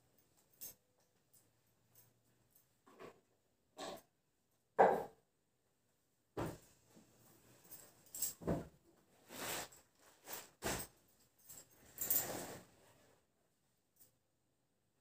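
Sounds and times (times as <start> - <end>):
curtain rings scraping on rod: 12.0 - 12.7.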